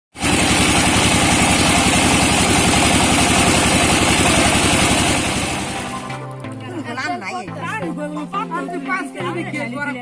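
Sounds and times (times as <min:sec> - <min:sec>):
diesel engine chugging: 0:00.2 - 0:06.2.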